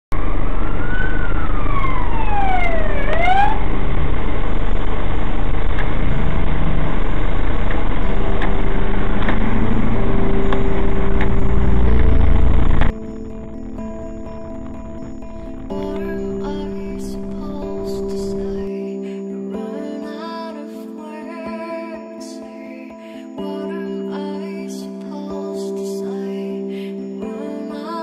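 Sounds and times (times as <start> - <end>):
car road and engine noise: 0.1 - 18.7
siren wailing: 0.1 - 18.7.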